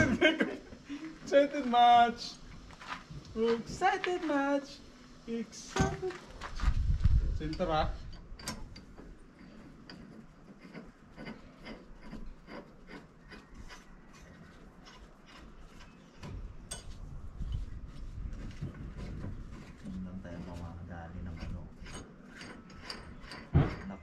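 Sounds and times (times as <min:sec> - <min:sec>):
low rumble: 0:06.4 - 0:08.2
metal parts clicking and scraping: 0:07.4 - 0:17.7, 0:21.4 - 0:24.0.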